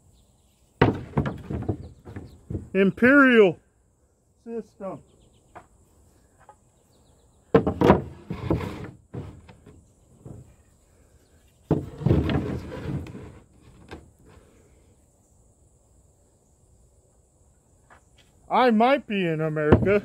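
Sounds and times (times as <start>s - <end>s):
wooden floor strips clattering: 0.8s - 2.8s, 7.5s - 10.6s, 11.7s - 14.0s
wooden knocks: 0.8s - 2.8s, 7.5s - 10.6s, 11.7s - 14.0s, 19.7s - 20.0s.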